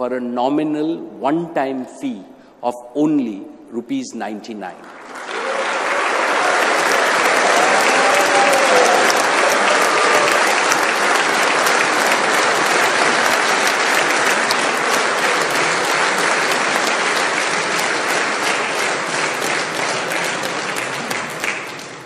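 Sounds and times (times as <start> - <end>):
audience applauding: 4.8 - 22.0.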